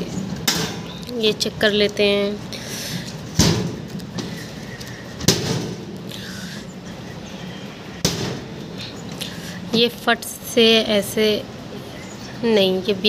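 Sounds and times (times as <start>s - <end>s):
oven door knocking: 3.4s - 3.8s.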